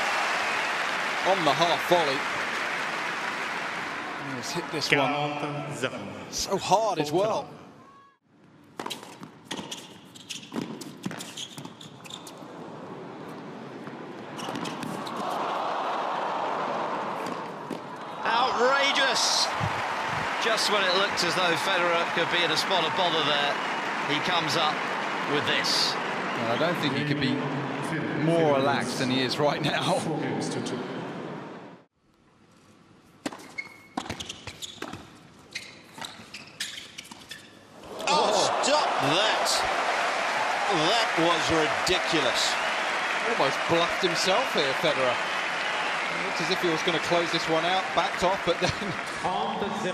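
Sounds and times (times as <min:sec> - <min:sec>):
crowd noise: 0:00.0 - 0:05.8, 0:12.5 - 0:31.8, 0:37.8 - 0:49.9
shoe squeaks: 0:08.8 - 0:12.4, 0:14.3 - 0:15.3, 0:33.3 - 0:37.7.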